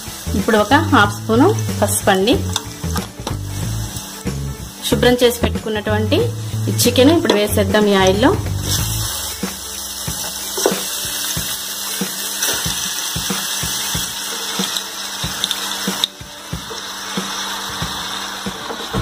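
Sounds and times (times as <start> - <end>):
chicken sizzling in hot oil: 0.0 - 19.0.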